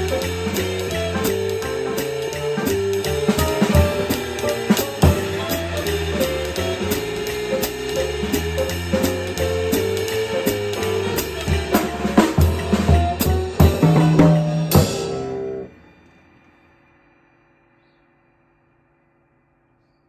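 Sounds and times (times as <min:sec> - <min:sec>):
hard drum hits: 0:00.0 - 0:15.7
jazz backing track: 0:00.0 - 0:15.8.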